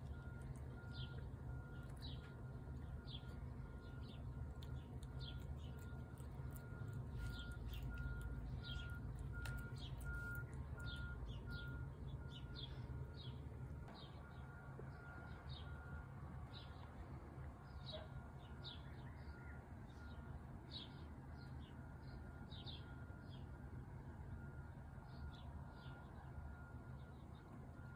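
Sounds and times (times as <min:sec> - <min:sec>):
small birds chirping: 0:00.0 - 0:16.9, 0:17.6 - 0:23.5
steady low rumble: 0:00.0 - 0:17.8
faint repeating beep: 0:00.1 - 0:02.4, 0:05.3 - 0:16.1.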